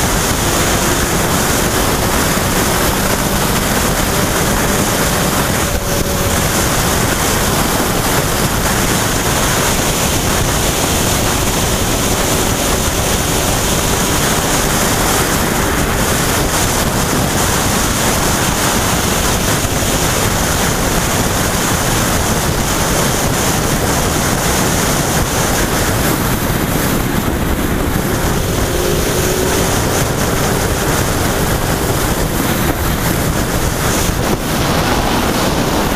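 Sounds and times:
faint motorcycle engine: 0:00.0 - 0:35.9
wind rushing over microphone: 0:00.0 - 0:35.9.

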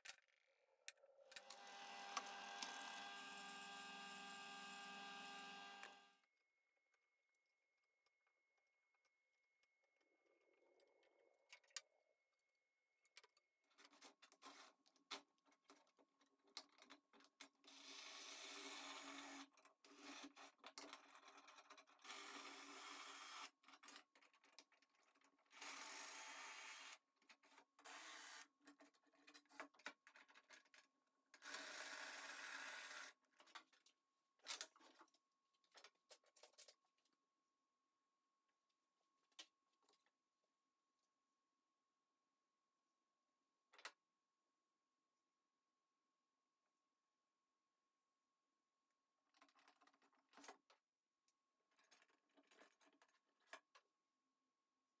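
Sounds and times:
cordless drill running: 0:01.5 - 0:06.1.

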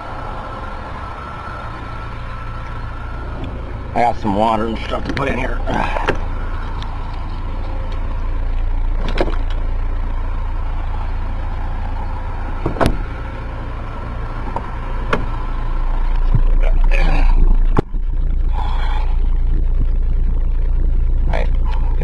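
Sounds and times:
steady low rumble: 0:00.0 - 0:22.0
car door shutting: 0:04.8 - 0:08.0, 0:08.9 - 0:09.6, 0:12.5 - 0:13.3, 0:14.4 - 0:15.5.

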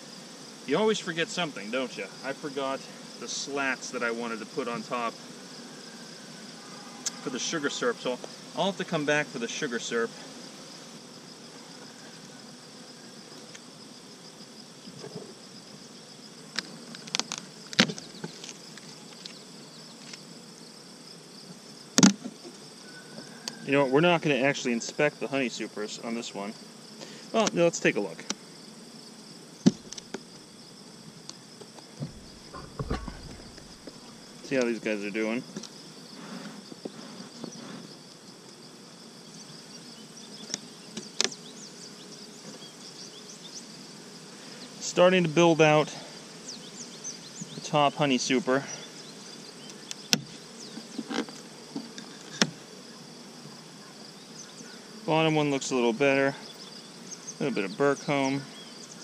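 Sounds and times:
bees buzzing: 0:00.0 - 0:59.0
insects chirring: 0:00.0 - 0:59.0
metal hive cover clacking: 0:32.0 - 0:34.0.

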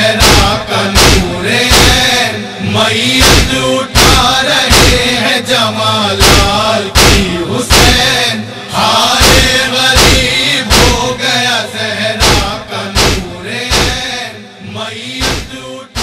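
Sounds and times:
voices chanting a lament: 0:00.0 - 0:16.0
chest-beating slaps: 0:00.2 - 0:02.1, 0:03.2 - 0:05.1, 0:06.2 - 0:08.1, 0:09.2 - 0:11.1, 0:12.2 - 0:14.1, 0:15.2 - 0:16.0.

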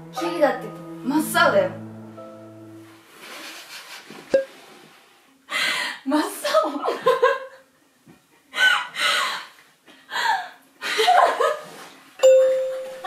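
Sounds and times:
young women stifling laughter: 0:10.3 - 0:11.7
ringing tone: 0:12.2 - 0:13.0.

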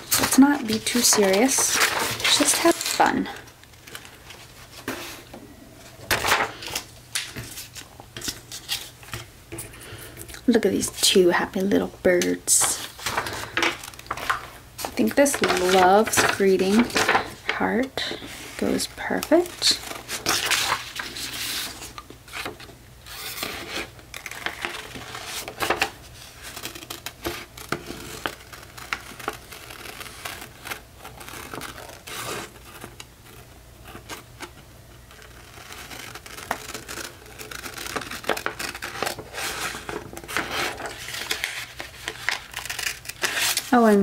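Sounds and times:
paper rustling: 0:00.0 - 0:10.1, 0:10.8 - 0:44.0
scissors snipping paper: 0:00.1 - 0:03.1.

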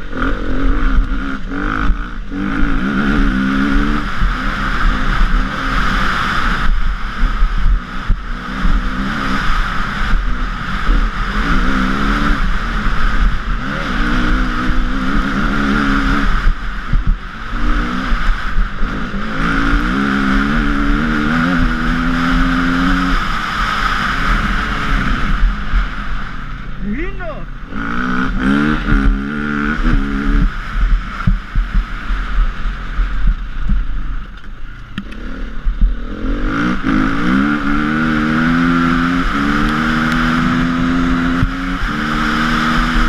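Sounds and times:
motorcycle engine revving: 0:00.0 - 0:43.0
wind and tyres on gravel: 0:00.0 - 0:43.0.

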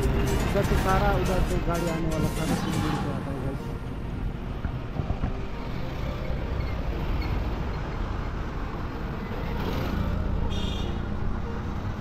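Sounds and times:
cars passing on road: 0:00.0 - 0:12.0.

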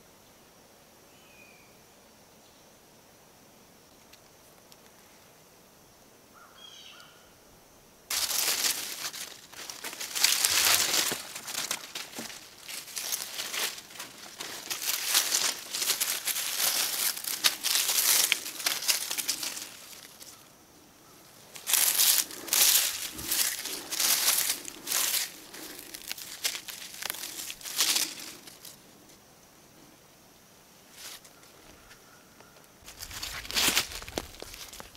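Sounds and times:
leaf litter rustling: 0:08.1 - 0:20.5, 0:21.3 - 0:28.8, 0:32.8 - 0:34.9.

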